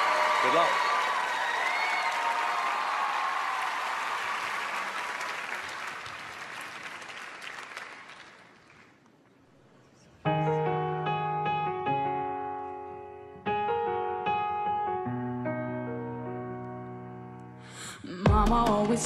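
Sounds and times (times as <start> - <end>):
audience applause: 0.0 - 9.4
piano chords: 10.2 - 19.0.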